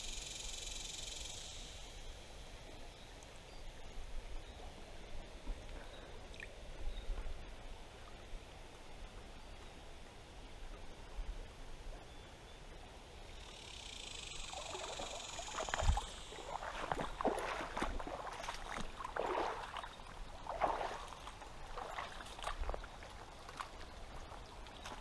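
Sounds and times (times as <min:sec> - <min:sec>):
wading steps splashing in water: 0:14.4 - 0:25.0.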